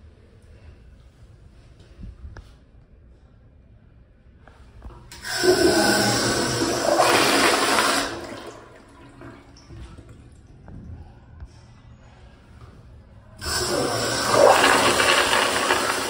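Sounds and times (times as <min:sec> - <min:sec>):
toilet flushing: 0:05.1 - 0:10.4, 0:13.4 - 0:16.0.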